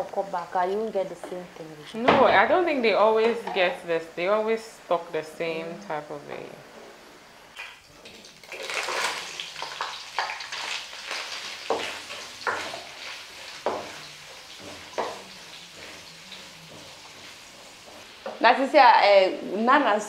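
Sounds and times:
stir fry sizzling: 0:00.0 - 0:20.0
utensil scraping a pot: 0:10.5 - 0:18.7.

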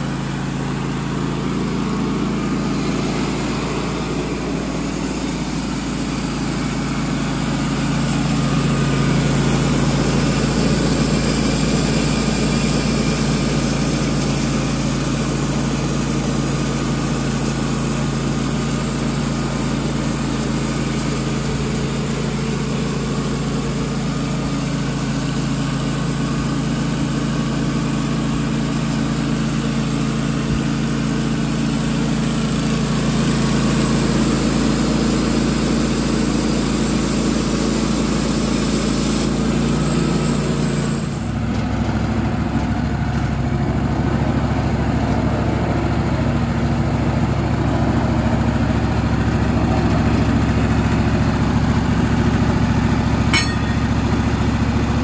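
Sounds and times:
band sawmill cutting wood: 0:00.0 - 0:27.4, 0:29.5 - 0:41.4.

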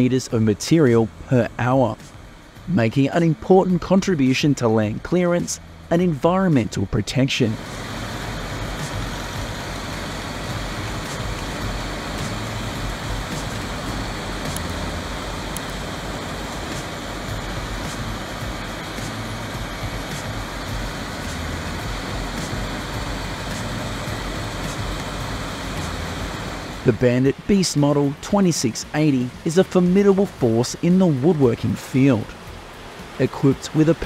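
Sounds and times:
grinder machine running: 0:07.6 - 0:27.4.

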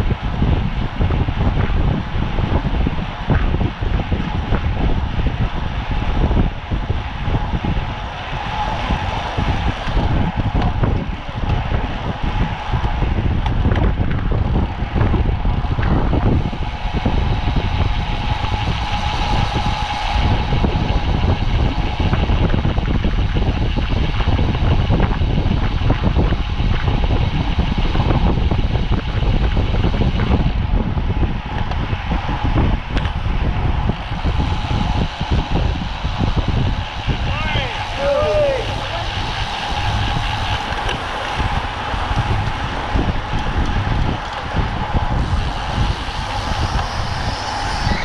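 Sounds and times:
road and drivetrain rumble: 0:00.0 - 0:48.0
steady hum: 0:00.0 - 0:48.0
wind rushing over microphone: 0:00.0 - 0:48.0.

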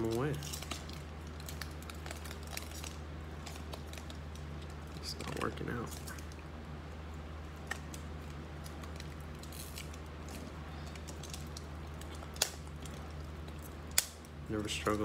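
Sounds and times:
wrapper rustling: 0:00.0 - 0:06.4.

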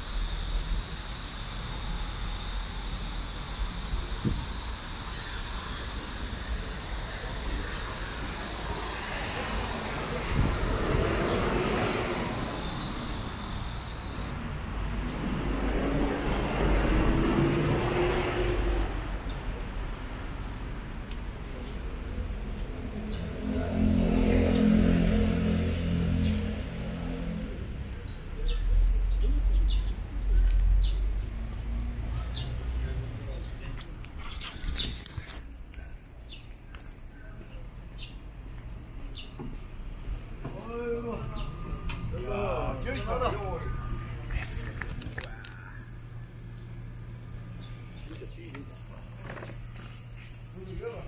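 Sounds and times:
insects trilling: 0:00.0 - 0:51.0
traffic rumble: 0:00.0 - 0:51.0
vehicle passing close: 0:05.5 - 0:35.4, 0:38.0 - 0:51.0
bird chirping: 0:28.0 - 0:32.7.

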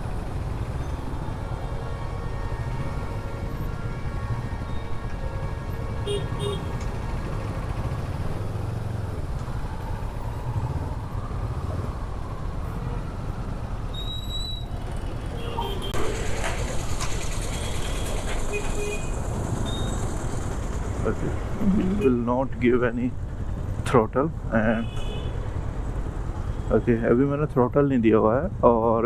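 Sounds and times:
wind: 0:00.0 - 0:29.0
traffic horn beeps: 0:05.9 - 0:06.8, 0:15.3 - 0:16.0, 0:17.6 - 0:20.0, 0:24.7 - 0:25.4
motorcycle engine rumble: 0:20.7 - 0:23.8.

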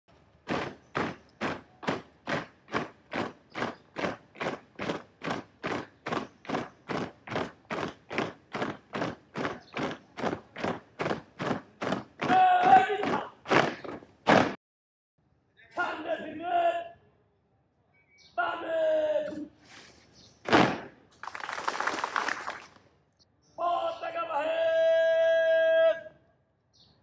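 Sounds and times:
boots marching in step: 0:00.4 - 0:14.6
loud shouted call: 0:12.2 - 0:13.6, 0:18.4 - 0:19.4, 0:23.6 - 0:26.2.

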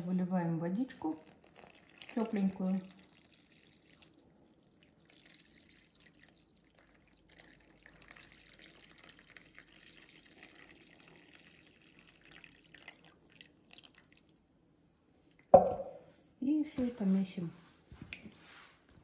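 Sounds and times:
water trickling onto flour: 0:00.7 - 0:14.6.

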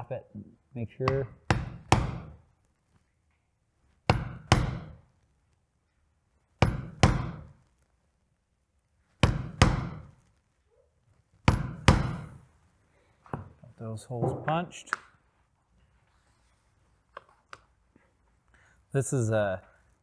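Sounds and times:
mallet striking hole punch: 0:01.1 - 0:02.4, 0:04.1 - 0:05.0, 0:06.6 - 0:07.5, 0:09.2 - 0:10.1, 0:11.4 - 0:12.3.

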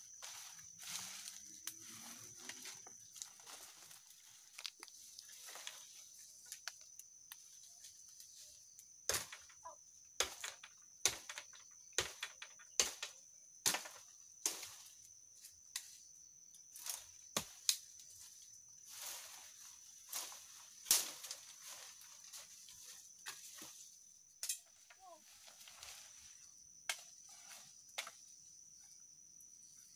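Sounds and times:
rustling leaves and stems: 0:00.0 - 0:09.7, 0:14.5 - 0:29.0
woody stalks cracking: 0:04.1 - 0:05.8.

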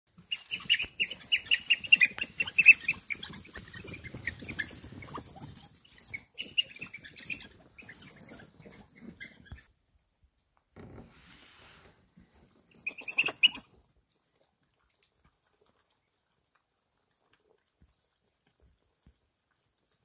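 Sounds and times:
wild dogs twittering chirps: 0:00.1 - 0:09.7, 0:12.4 - 0:13.6.

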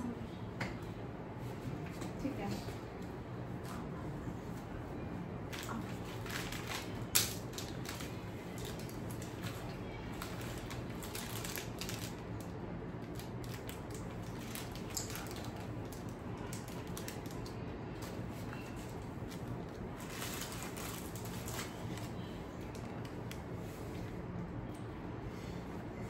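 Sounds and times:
steady low hum: 0:00.0 - 0:26.0
plastic candy wrappers crinkling: 0:05.5 - 0:23.2.

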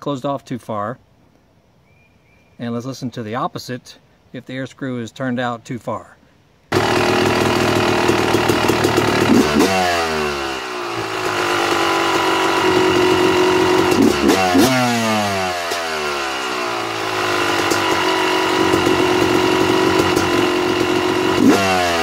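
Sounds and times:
two-stroke engine idling: 0:06.7 - 0:22.0.

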